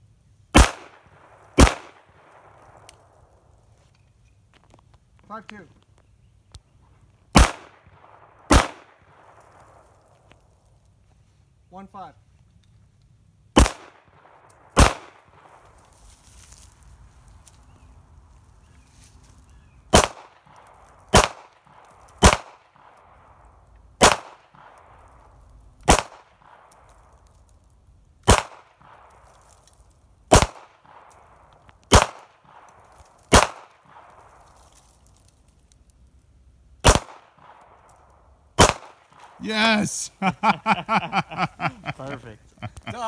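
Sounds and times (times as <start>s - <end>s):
pistol shots with echo: 0.5s - 2.7s, 7.3s - 9.3s, 13.6s - 15.6s, 19.9s - 22.9s, 24.0s - 24.8s, 25.9s - 26.8s, 28.3s - 29.0s, 30.3s - 31.1s, 31.9s - 34.1s, 36.8s - 37.7s, 38.6s - 39.4s.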